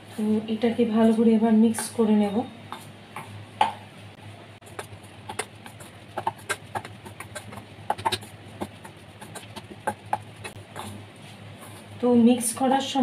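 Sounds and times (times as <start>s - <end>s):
low steady hum: 0.0s - 13.0s
spoon scraping steel bowl: 4.7s - 11.0s.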